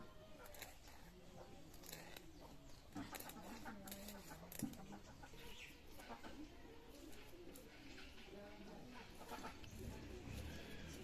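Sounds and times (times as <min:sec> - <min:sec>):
knife scraping fish scales: 0:00.4 - 0:02.3
hen clucking: 0:02.4 - 0:06.6, 0:08.9 - 0:11.0.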